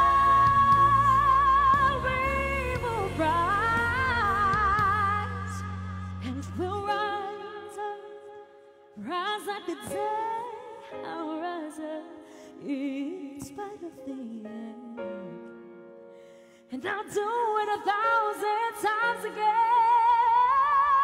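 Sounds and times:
woman singing with vibrato: 0.0 - 15.4, 16.7 - 21.0.

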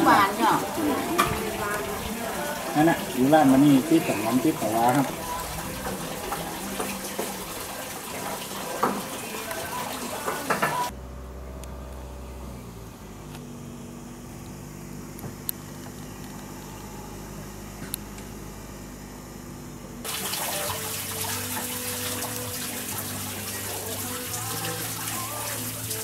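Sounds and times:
soft background music: 0.0 - 10.9, 20.1 - 26.0.

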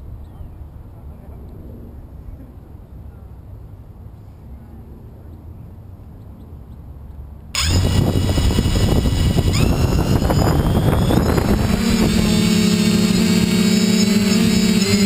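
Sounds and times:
drone motors buzzing and whining: 7.6 - 15.0.

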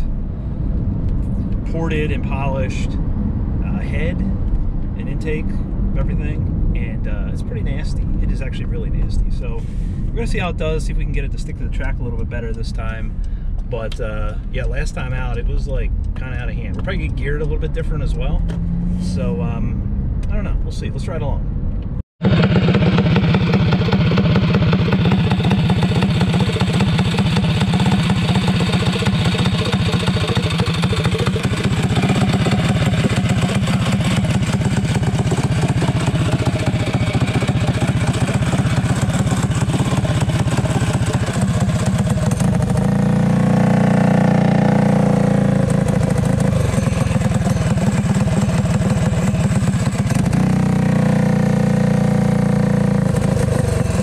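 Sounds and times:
go-kart engine idling and revving: 22.2 - 54.0.

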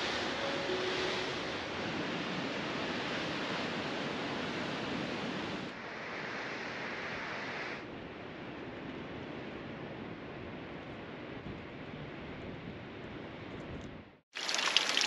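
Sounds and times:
ocean surf rushing: 0.0 - 7.8
wind: 0.0 - 15.0.

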